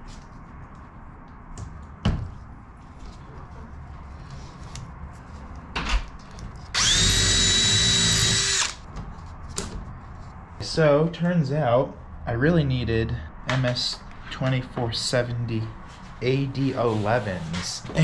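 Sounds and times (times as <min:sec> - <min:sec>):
cordless drill drilling metal: 0:06.8 - 0:08.8.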